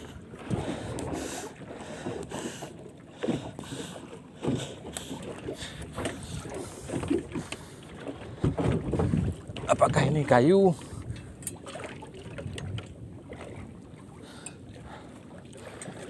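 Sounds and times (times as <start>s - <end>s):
wind buffeting microphone: 0.0s - 1.4s, 5.1s - 14.1s
small boat engine noise: 0.0s - 16.0s.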